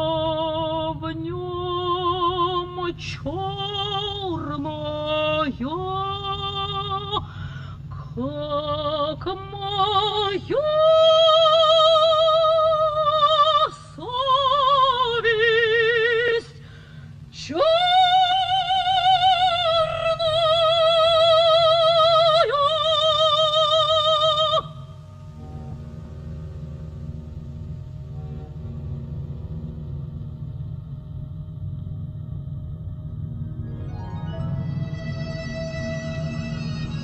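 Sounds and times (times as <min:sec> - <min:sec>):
operatic soprano singing: 0:00.0 - 0:07.3, 0:07.9 - 0:16.6, 0:17.3 - 0:25.1, 0:34.2 - 0:37.0
singer breathing: 0:07.2 - 0:08.1, 0:16.6 - 0:17.3.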